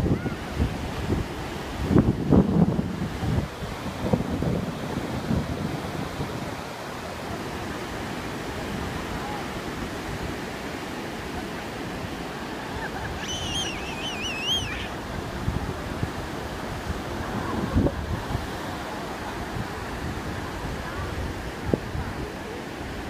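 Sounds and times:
wind on microphone: 0.0 - 10.6, 11.3 - 23.0
ocean surf breaking: 0.0 - 23.0
toddler squealing: 12.8 - 15.0.

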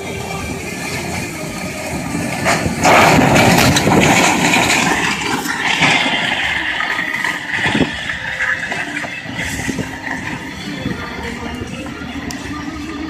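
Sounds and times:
storm wind buffeting: 2.1 - 11.8.

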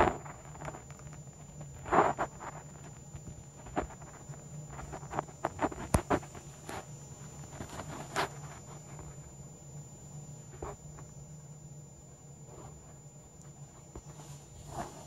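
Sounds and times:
fingers rustling cat fur: 0.0 - 9.3, 13.8 - 15.0
low steady hum: 0.0 - 15.0.

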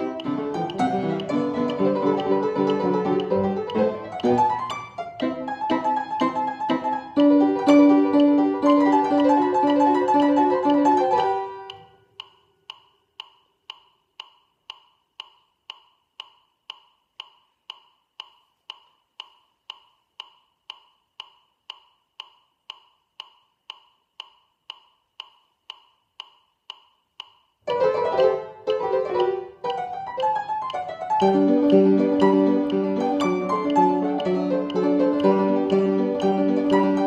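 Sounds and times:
piano notes: 0.0 - 11.9, 27.7 - 37.0
metronome ticking: 0.0 - 37.0.

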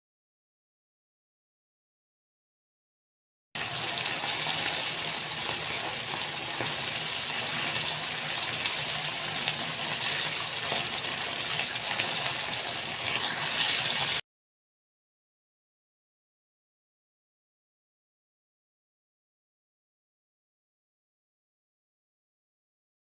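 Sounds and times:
food sizzling in a frying pan: 3.6 - 14.2.

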